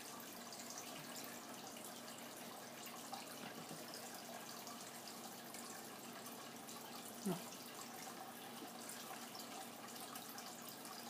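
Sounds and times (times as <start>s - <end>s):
faint room tone hiss: 0.0s - 11.0s.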